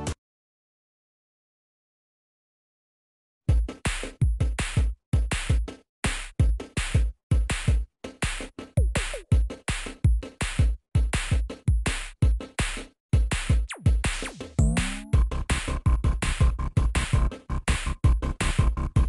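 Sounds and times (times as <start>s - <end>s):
electronic drum machine beat: 3.5s - 19.0s.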